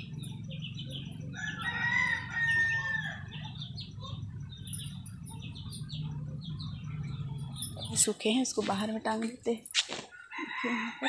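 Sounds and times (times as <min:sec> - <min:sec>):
small birds chirping: 0:00.0 - 0:10.4
rooster crowing: 0:01.3 - 0:03.5, 0:10.1 - 0:11.0.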